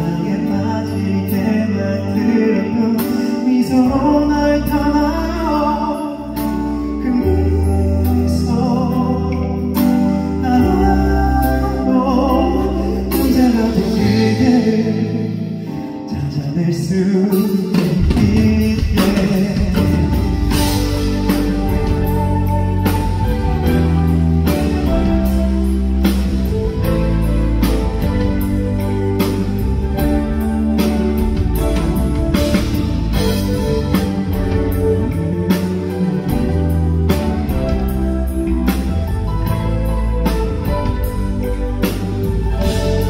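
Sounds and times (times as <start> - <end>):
man singing into microphone: 0.0 - 22.5
band playing bass guitar drums: 17.3 - 43.0.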